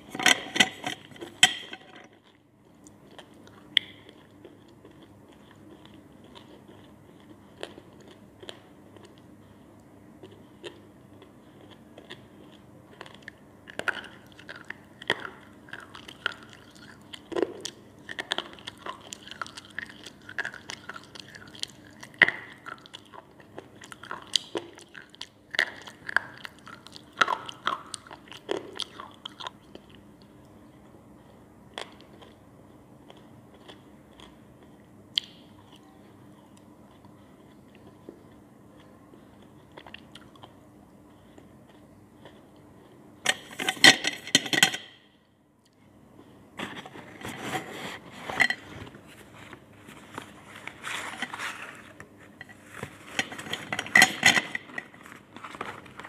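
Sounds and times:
chewing crunches: 0:02.1 - 0:30.3, 0:31.2 - 0:43.5.

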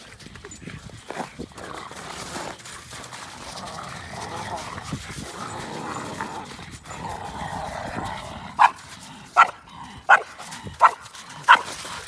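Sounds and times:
dog barking: 0:09.4 - 0:11.7.

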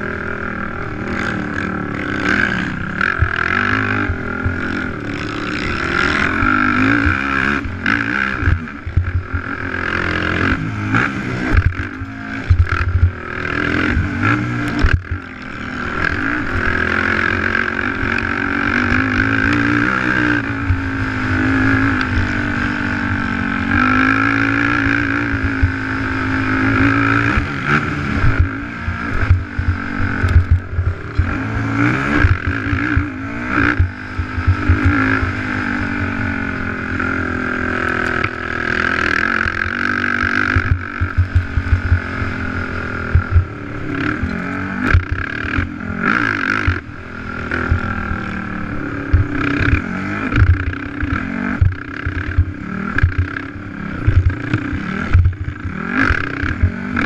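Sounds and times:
quad bike engine revving: 0:00.0 - 0:57.0.

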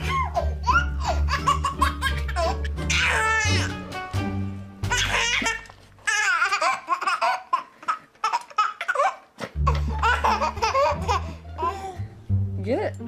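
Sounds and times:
baby laughing: 0:00.0 - 0:03.9, 0:04.9 - 0:12.0
background music: 0:00.0 - 0:06.0, 0:09.4 - 0:13.0.

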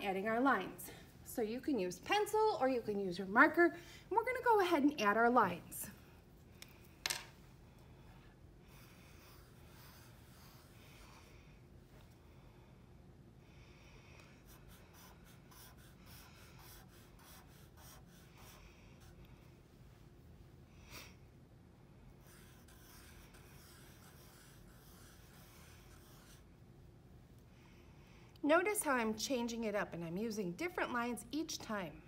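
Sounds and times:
marker scratching on paper: 0:09.0 - 0:11.2, 0:14.4 - 0:19.1, 0:22.2 - 0:26.5.

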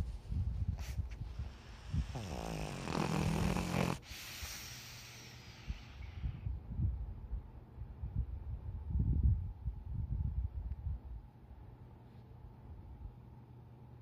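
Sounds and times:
dog breathy exhale: 0:00.7 - 0:06.5.

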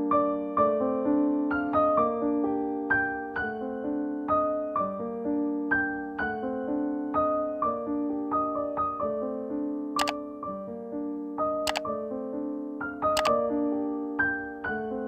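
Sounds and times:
sharp click: 0:11.7 - 0:11.9, 0:13.2 - 0:13.4.

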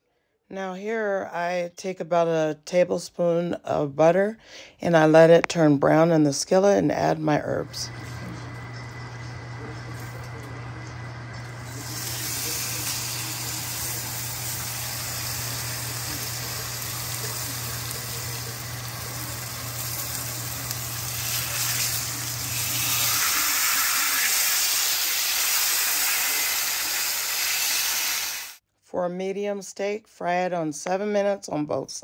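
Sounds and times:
steaks sizzling in butter: 0:11.6 - 0:28.6.

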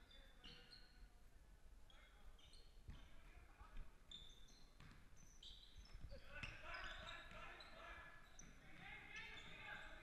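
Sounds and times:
sneaker squeaks: 0:00.3 - 0:01.1, 0:02.4 - 0:03.1, 0:04.0 - 0:09.7.

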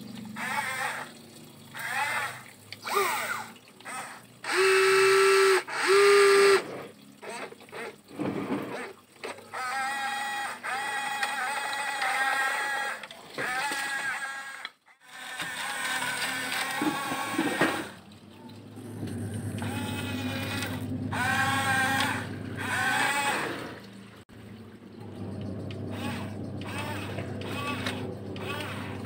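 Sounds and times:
toy bulldozer motors whining: 0:00.3 - 0:18.0, 0:18.8 - 0:24.0, 0:25.6 - 0:29.0.

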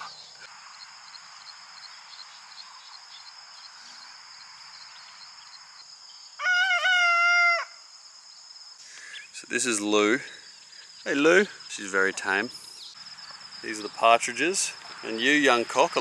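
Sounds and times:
high buzz of insects: 0:00.0 - 0:16.0
rooster crowing: 0:06.4 - 0:07.8.

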